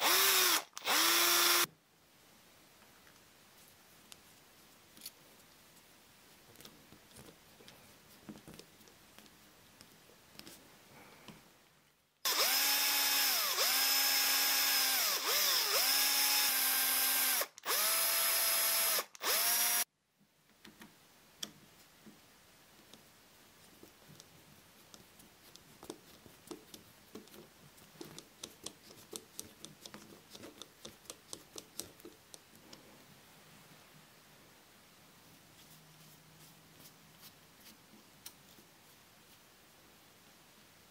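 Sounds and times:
small electric drill whining: 0.0s - 1.7s, 12.2s - 19.9s.

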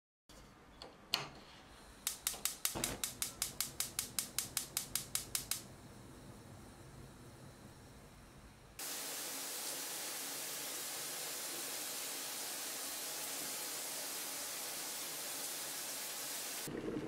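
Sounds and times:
gas burner hissing: 1.4s - 17.0s
stove spark igniter clicking: 1.9s - 5.7s.

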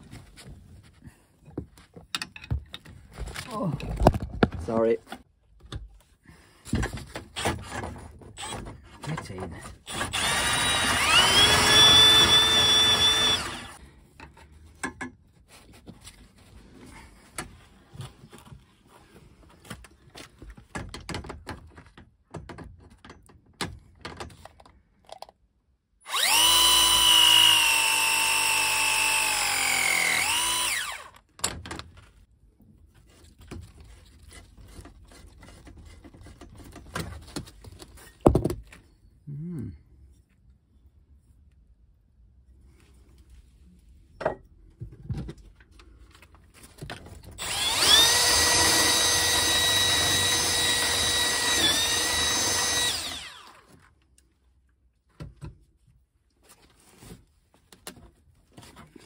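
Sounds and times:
power drill whining: 8.4s - 8.6s, 9.8s - 13.8s, 26.1s - 31.2s, 47.4s - 53.8s
clicks and knocks of tools: 14.2s - 15.2s.

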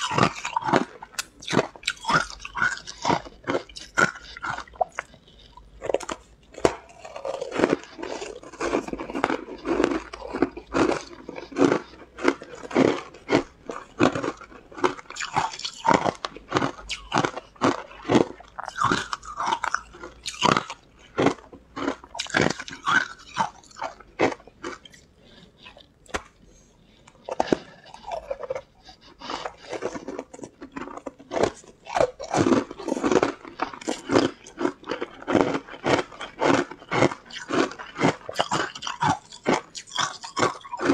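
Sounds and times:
ice crunching while chewed: 0.0s - 40.9s.

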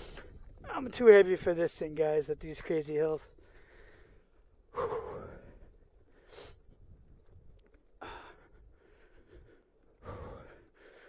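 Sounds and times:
man breathing hard: 3.4s - 6.9s, 8.0s - 11.0s.

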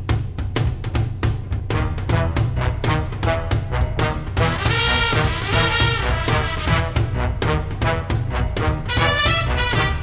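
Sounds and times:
swing big band music: 1.7s - 10.0s
brass held chord: 2.1s - 10.0s.

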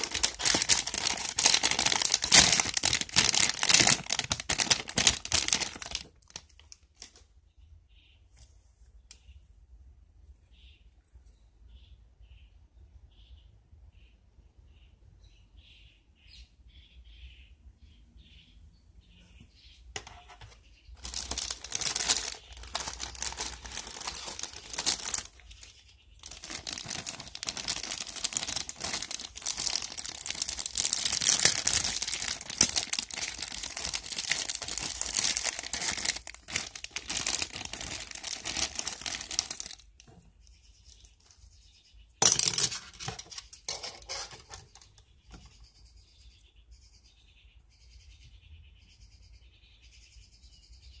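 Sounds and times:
plastic bags crinkling: 0.0s - 7.2s, 21.0s - 40.1s, 42.2s - 45.0s.

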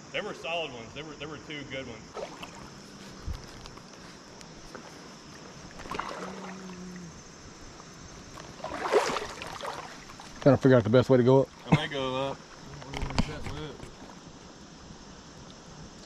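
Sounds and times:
water splash: 2.1s - 2.8s, 5.7s - 7.0s, 8.4s - 10.4s
water sloshing around wading legs: 2.1s - 10.5s.

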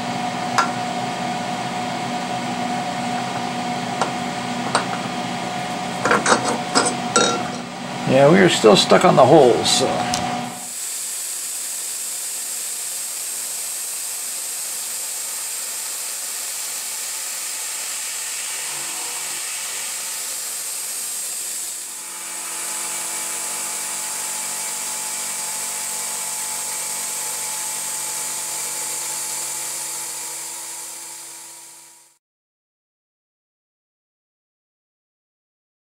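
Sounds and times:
steady hums and whines: 0.0s - 10.7s, 18.2s - 24.5s
milling machine cutting metal: 0.2s - 10.8s, 11.4s - 32.1s.

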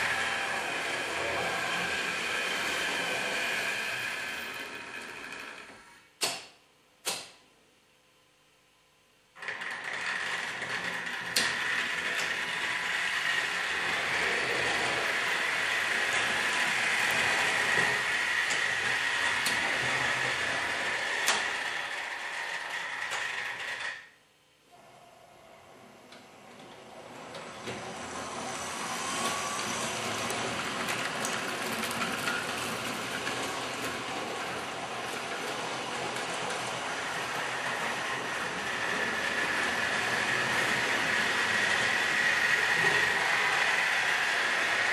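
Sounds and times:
model train whirring on rails: 0.0s - 6.0s, 9.4s - 44.9s
sharp click: 6.2s - 7.4s.

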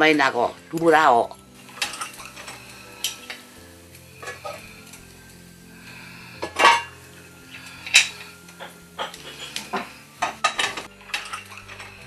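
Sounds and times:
metal pots and plates clattering: 1.6s - 3.5s, 4.2s - 5.0s, 6.4s - 12.0s.

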